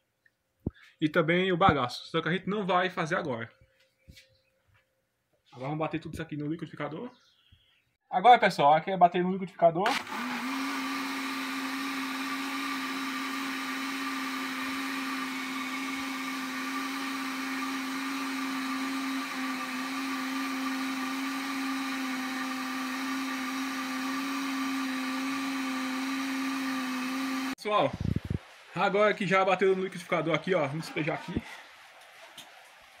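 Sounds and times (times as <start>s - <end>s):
blender motor whirring: 9.9s - 27.6s.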